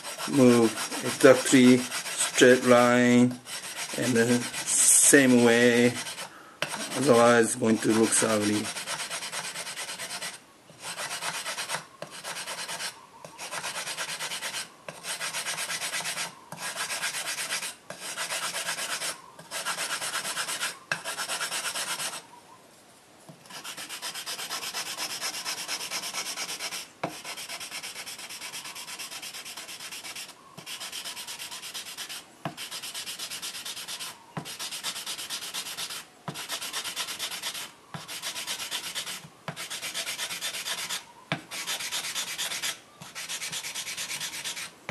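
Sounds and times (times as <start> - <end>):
gritty scraping on knife blade: 0.0 - 22.2.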